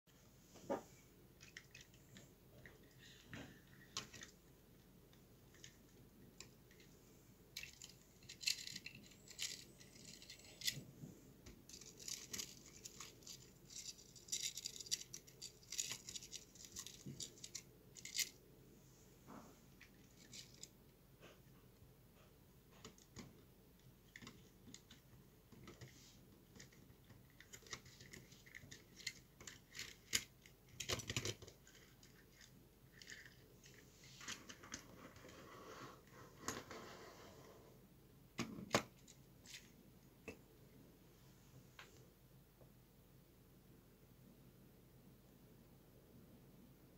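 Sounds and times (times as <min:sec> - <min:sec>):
plastic parts clicking and rattling: 0:01.4 - 0:18.4, 0:19.8 - 0:20.8, 0:22.8 - 0:35.3.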